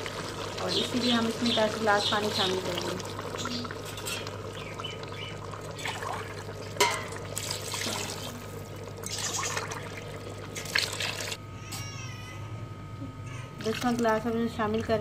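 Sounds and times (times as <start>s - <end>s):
water pouring into broth: 0.0s - 11.4s.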